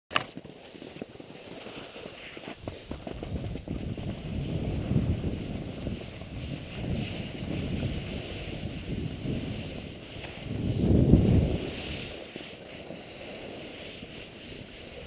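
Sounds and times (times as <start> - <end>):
skis sliding on snow: 0.1 - 15.0
wind buffeting microphone: 2.6 - 12.2.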